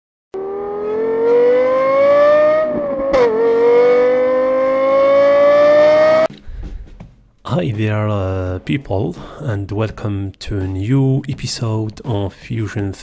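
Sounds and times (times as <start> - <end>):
race car engine revving: 0.4 - 6.3.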